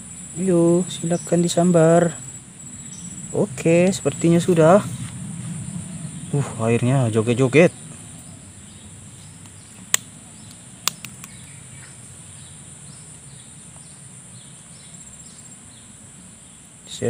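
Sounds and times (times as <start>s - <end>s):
high-pitched insect drone: 0.0s - 17.0s
sharp clicks: 9.4s - 11.5s.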